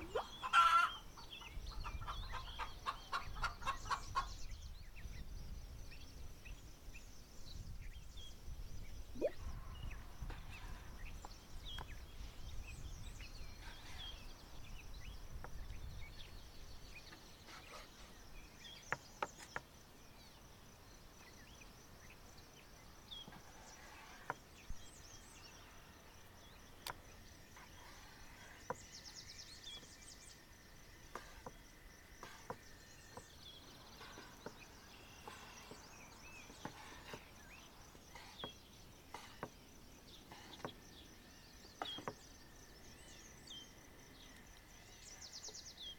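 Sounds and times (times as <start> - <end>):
bird chirps: 0.0 - 20.5, 32.2 - 45.9.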